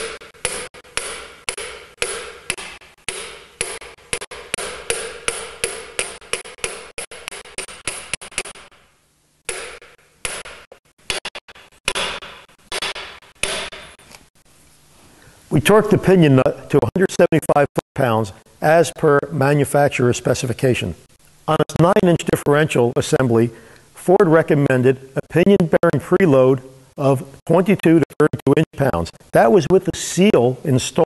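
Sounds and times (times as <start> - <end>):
hammer tapping steel block: 0.0 - 8.7, 9.5 - 14.0.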